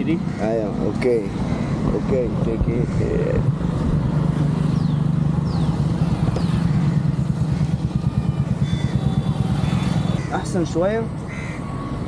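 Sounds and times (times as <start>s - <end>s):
small vehicle engine idling: 4.8s - 10.3s.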